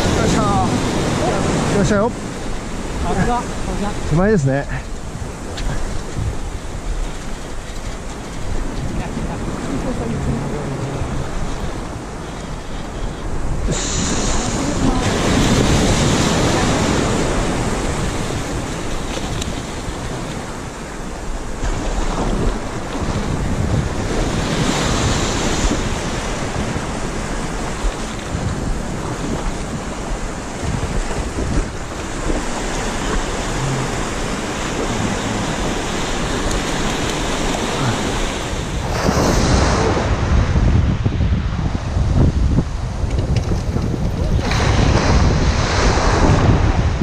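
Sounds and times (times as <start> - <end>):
sea surf breaking: 0.0 - 47.0
wind buffeting microphone: 0.0 - 47.0.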